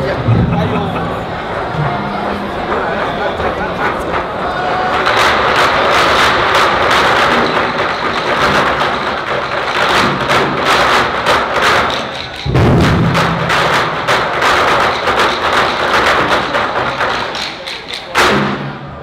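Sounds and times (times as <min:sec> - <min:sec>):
heavy unison drum stroke: 0:00.0 - 0:09.2, 0:12.4 - 0:15.3
large drums struck fast: 0:00.2 - 0:17.5.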